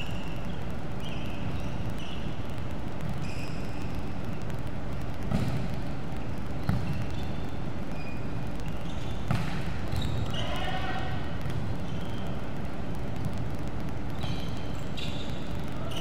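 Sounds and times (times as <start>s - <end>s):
indoor hall background noise: 0.0s - 16.0s
volleyball being hit: 9.3s - 10.0s.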